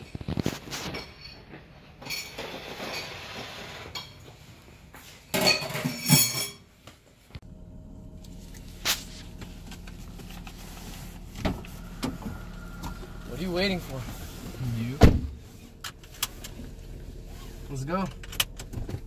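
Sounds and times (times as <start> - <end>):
dishes and cutlery clinking: 5.3 - 6.7
car engine hum from inside: 7.4 - 19.0.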